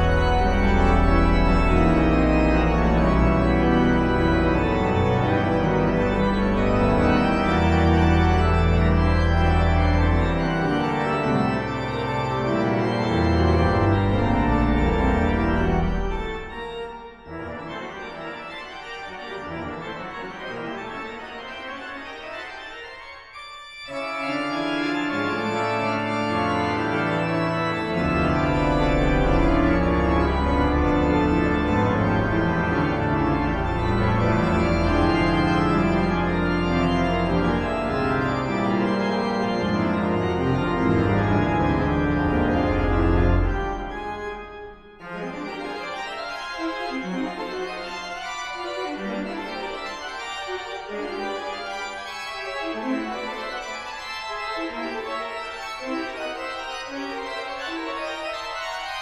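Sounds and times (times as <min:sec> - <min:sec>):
deep organ pedal bass: 0:00.0 - 0:17.0, 0:24.0 - 0:44.7
pipe organ chords: 0:00.0 - 0:59.0.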